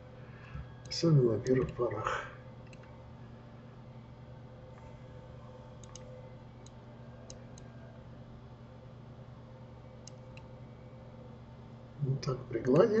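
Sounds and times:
faint steady hum: 0.0s - 13.0s
computer mouse clicking: 5.8s - 7.7s, 10.0s - 10.5s.

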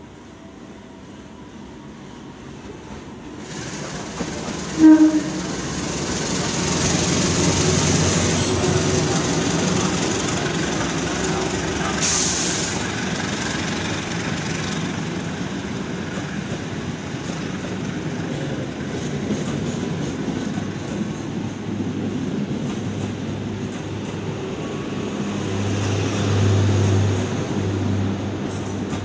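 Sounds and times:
train wheels rumbling on rails: 2.5s - 29.0s
clickety-clack over rail joints: 2.9s - 24.6s, 28.3s - 29.0s.

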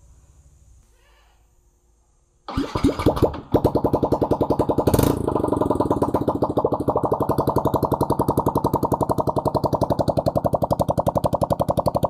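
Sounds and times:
motorcycle engine idling: 2.6s - 12.0s.

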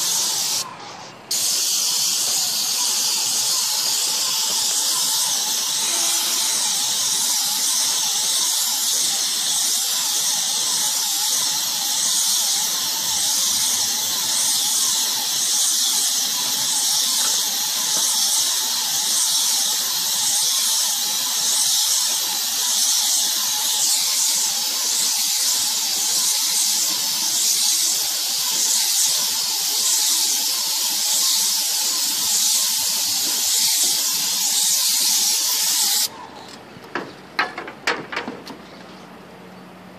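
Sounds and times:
paint spray gun hissing: 0.0s - 36.1s
faint wavering whine: 4.2s - 8.0s.

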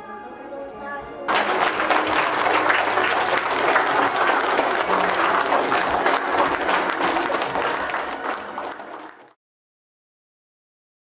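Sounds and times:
audience applauding: 1.3s - 9.4s.

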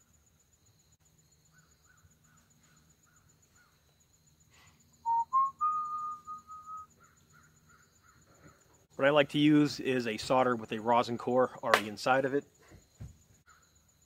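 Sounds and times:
man whistling: 5.0s - 6.9s.

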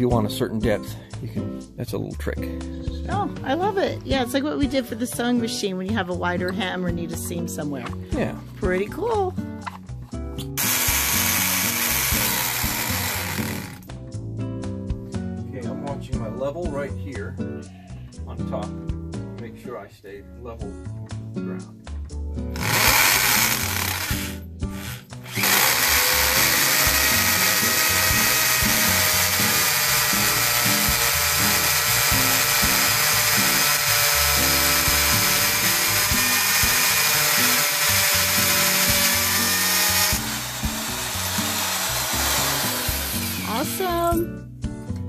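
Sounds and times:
hammer drill boring into brick: 10.6s - 13.8s, 22.6s - 43.9s.

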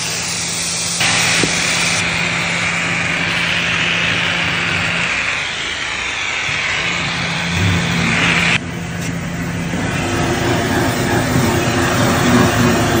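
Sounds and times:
pressure spray hissing on metal: 0.0s - 8.6s.

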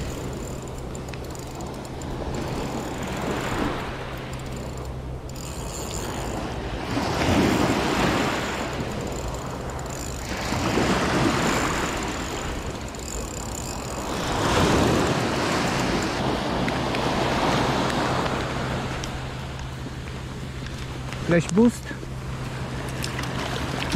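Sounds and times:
small waves breaking on beach: 6.3s - 8.9s, 14.0s - 19.6s.

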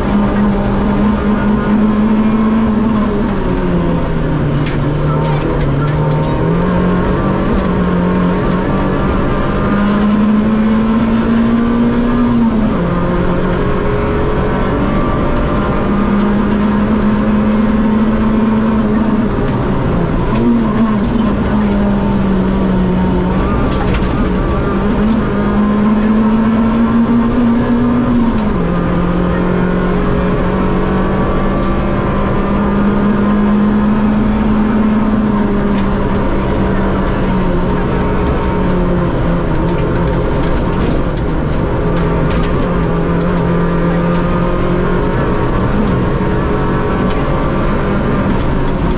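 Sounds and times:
rally car engine revving: 0.0s - 48.9s.

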